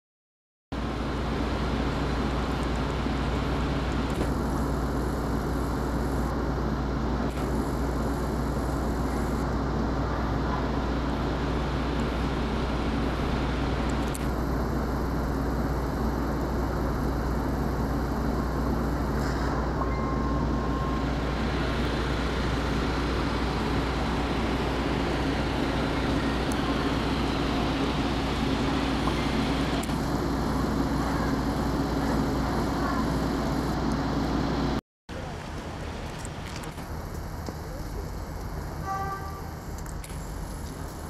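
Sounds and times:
street traffic rumble: 0.8s - 41.0s.

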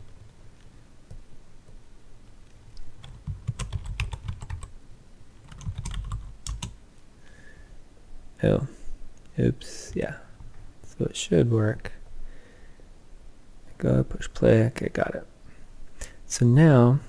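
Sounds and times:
typing on computer keyboard: 2.8s - 4.7s, 5.4s - 6.8s.

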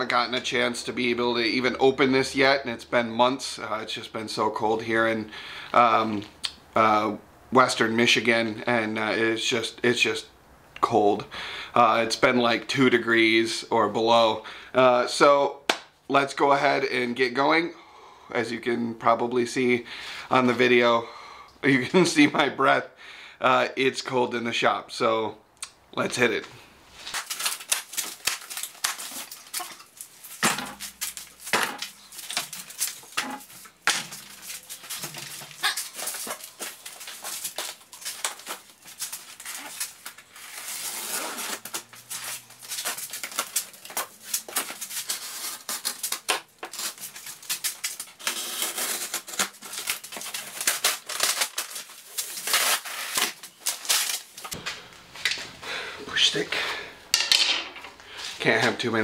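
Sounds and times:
plastic strapping and foam moved: 26.9s - 55.5s
cardboard flaps scraping and rustling: 27.0s - 54.6s.

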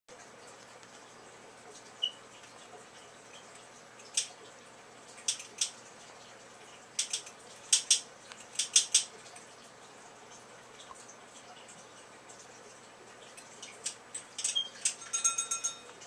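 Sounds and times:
faint room hum: 0.1s - 16.0s
collar tag clinking: 14.4s - 16.0s.

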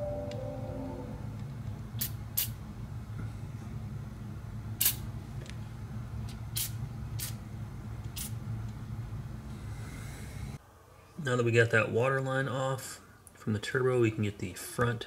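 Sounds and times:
low hum: 0.0s - 1.9s.

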